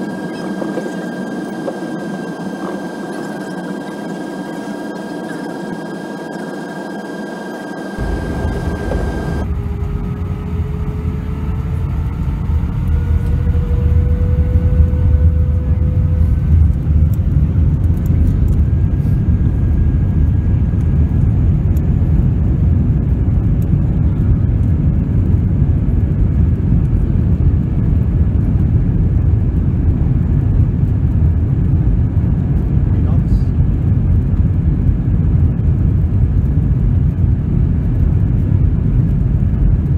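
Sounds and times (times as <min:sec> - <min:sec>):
jet engines whining: 0:00.0 - 0:22.5
heavy rumble: 0:00.0 - 0:39.9.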